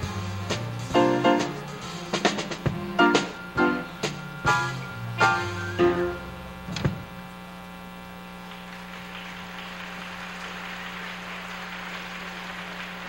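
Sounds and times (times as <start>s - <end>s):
electrical mains hum: 0.0s - 13.0s
faint noisy hiss: 0.0s - 13.0s
band chord hit: 2.2s - 6.9s.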